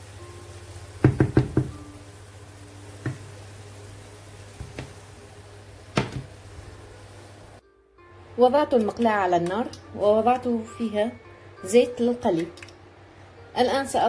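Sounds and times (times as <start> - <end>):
frying pan knocking on stove: 0.9 - 2.0, 3.0 - 3.4, 4.5 - 5.0, 5.9 - 6.4.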